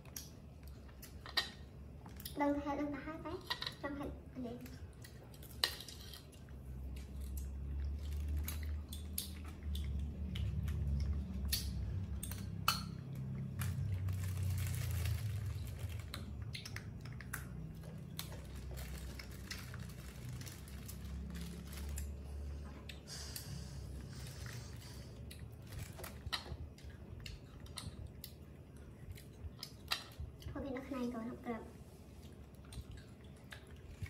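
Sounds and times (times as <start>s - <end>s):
low steady hum: 0.0s - 34.0s
monkey chewing crisp fruit: 13.2s - 30.0s.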